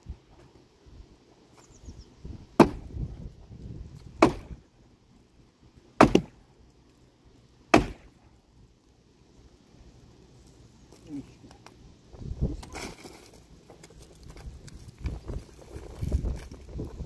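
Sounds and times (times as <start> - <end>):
sledgehammer striking tree trunk: 2.6 - 3.0, 4.2 - 4.6, 6.0 - 6.4, 7.7 - 8.2.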